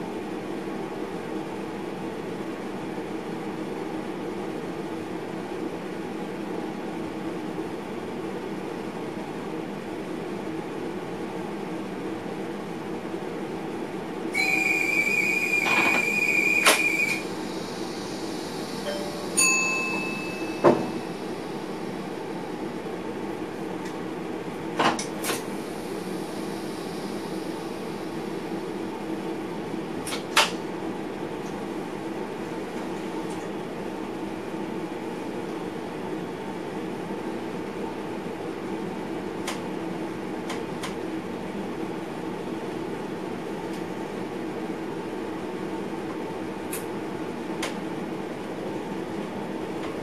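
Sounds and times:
train running hum: 0.0s - 50.0s
steady high tone: 14.4s - 21.8s
short high-pitched tone: 18.8s - 21.2s.

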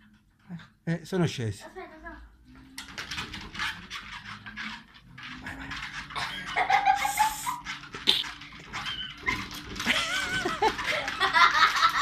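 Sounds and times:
treadmill humming: 0.0s - 12.0s
paws scrabbling on belt: 2.9s - 11.0s
small dogs whining and yipping: 8.6s - 9.8s.

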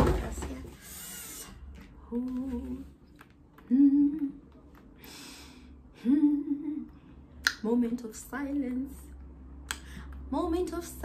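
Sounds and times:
woman humming: 3.6s - 4.6s, 6.0s - 7.0s.

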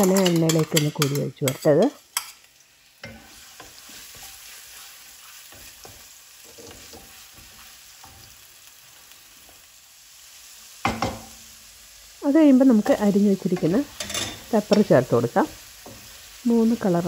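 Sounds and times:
spoon stirring and scraping: 0.0s - 9.7s, 12.8s - 16.4s
food sizzling in hot oil: 0.0s - 17.0s.

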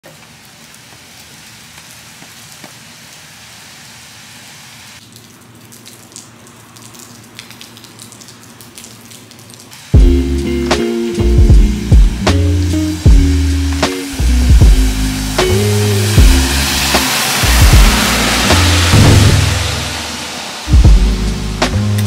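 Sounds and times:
rain hissing on pavement: 0.0s - 22.0s
scattered drips and patters: 4.4s - 22.0s.

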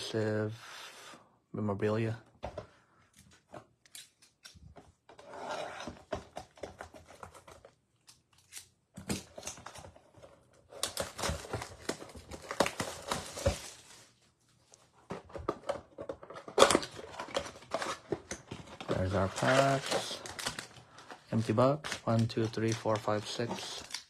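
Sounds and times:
card packs tapping and rustling: 5.9s - 7.8s, 9.0s - 14.1s, 15.0s - 24.0s
plastic wrapping crinkling and tearing: 10.7s - 14.2s, 16.5s - 24.0s.

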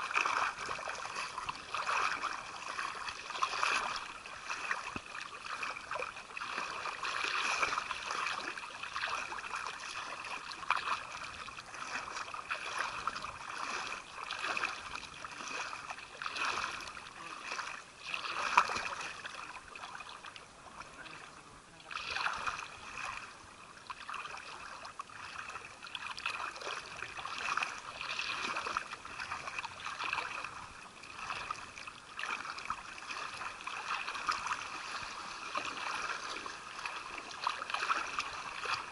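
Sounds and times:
seawater sloshing and lapping: 0.0s - 38.9s
small water splashes: 0.0s - 38.9s.

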